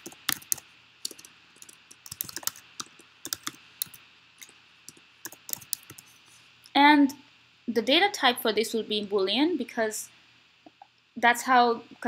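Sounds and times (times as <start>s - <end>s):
computer keyboard key clicks: 0.0s - 4.0s.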